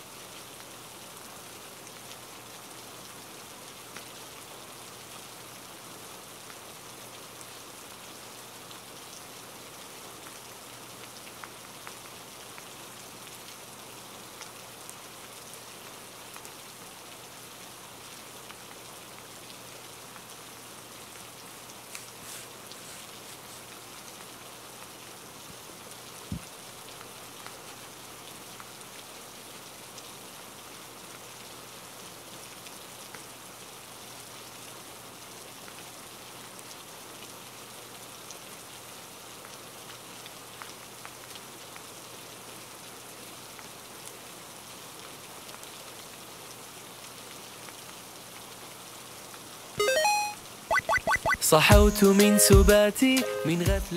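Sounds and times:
steady rain hiss: 0.0s - 53.9s.

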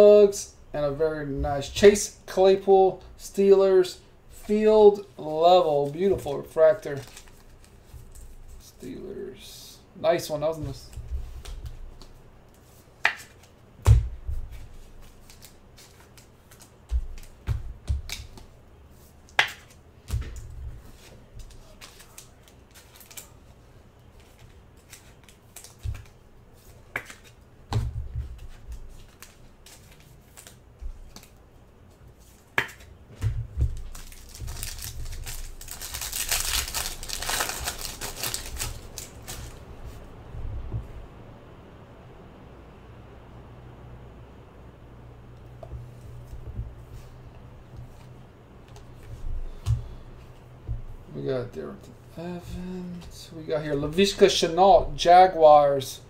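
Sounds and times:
wrapper crinkling: 6.8s - 8.5s, 21.4s - 23.4s, 33.7s - 39.7s
cards clicking and knocking: 13.0s - 18.6s, 24.2s - 26.2s, 26.9s - 31.3s, 32.2s - 39.5s.

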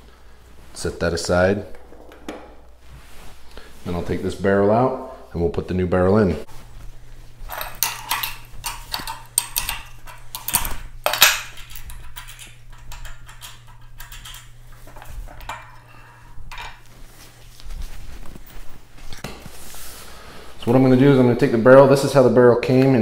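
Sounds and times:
metal clinks and clanks: 7.5s - 16.8s.

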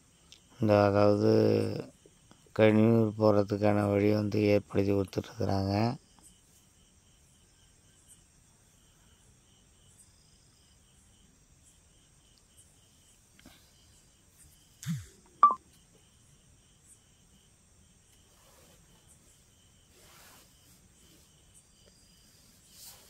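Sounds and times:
soft pulsing chirp: 14.8s - 15.6s.

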